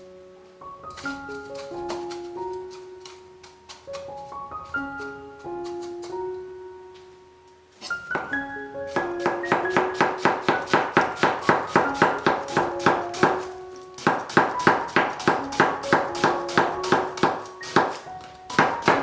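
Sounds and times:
piano music: 0:00.0 - 0:19.0
knife chopping cabbage on board: 0:08.2 - 0:19.0.

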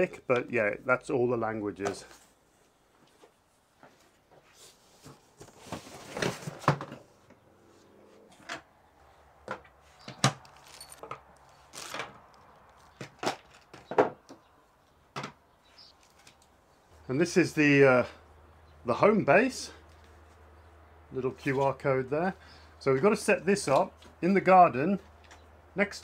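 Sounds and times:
cardboard and plastic rustling: 0:01.8 - 0:07.3, 0:09.5 - 0:14.2, 0:15.7 - 0:16.6.

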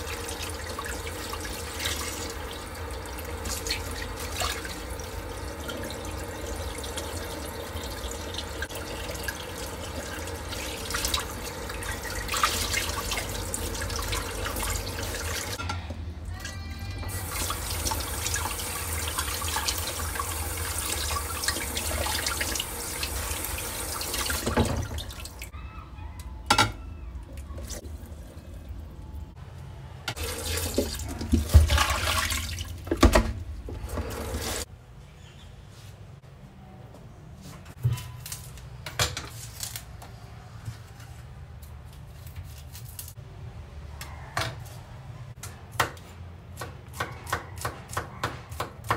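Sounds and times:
tap water running into sink: 0:00.0 - 0:15.6, 0:17.1 - 0:25.5, 0:30.2 - 0:34.6.

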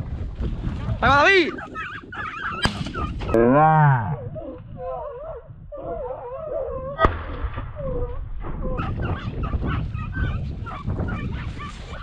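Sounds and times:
hounds yelping: 0:00.8 - 0:03.4, 0:04.1 - 0:07.1, 0:07.8 - 0:12.0.

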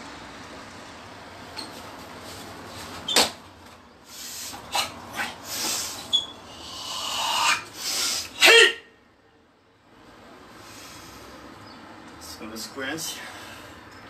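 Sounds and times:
forceful exhalations: 0:04.0 - 0:08.6
person shouting: 0:08.3 - 0:08.9.

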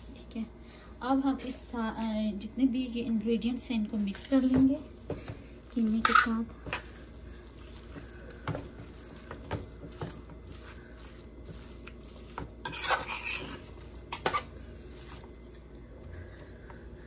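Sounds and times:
metal spoon scraping a pot: 0:05.9 - 0:07.0, 0:09.2 - 0:15.2.

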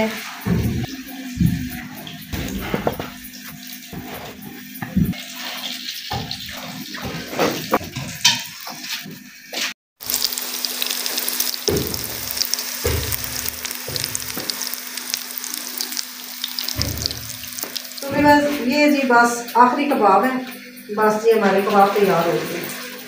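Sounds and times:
food sizzling in a frying pan: 0:07.6 - 0:22.0.

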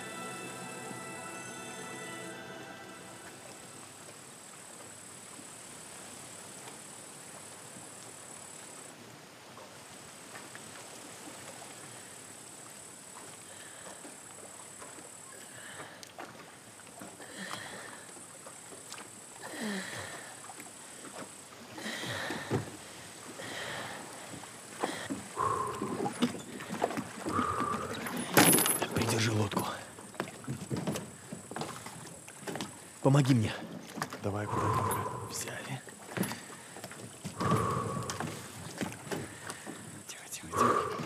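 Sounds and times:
oar strokes: 0:24.0 - 0:32.9, 0:33.6 - 0:41.0.

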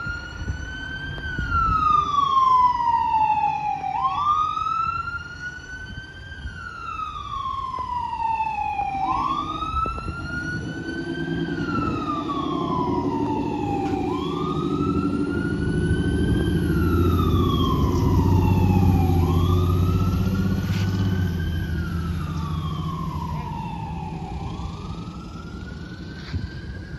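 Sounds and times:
fire truck siren wailing: 0:00.0 - 0:26.9
truck engine running low: 0:07.0 - 0:26.9.

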